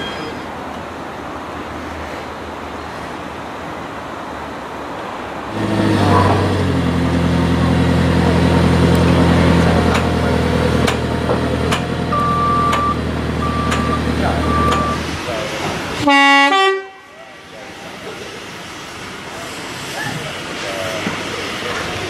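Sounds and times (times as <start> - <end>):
heavy engine running: 5.5 - 16.1.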